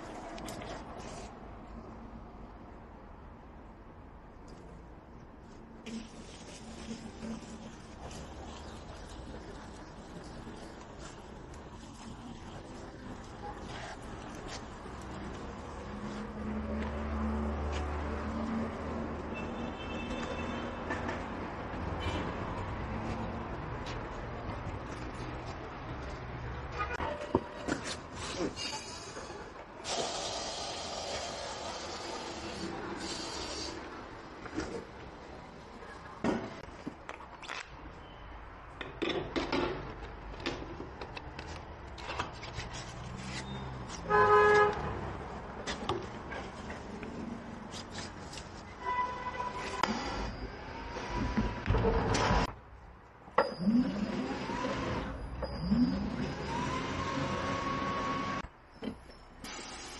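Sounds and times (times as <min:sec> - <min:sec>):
hiss: 0:29.8 - 0:33.9
brief high squeak: 0:43.2 - 0:43.8, 0:48.8 - 0:50.7.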